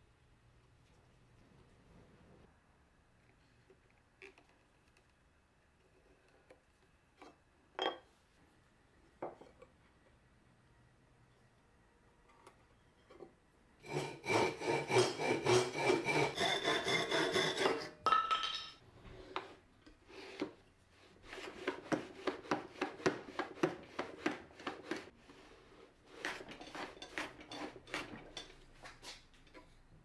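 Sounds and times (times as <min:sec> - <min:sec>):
hand plane trimming end grain: 0:13.8 - 0:17.9
hand saw cutting wood: 0:13.8 - 0:18.0, 0:21.3 - 0:25.1.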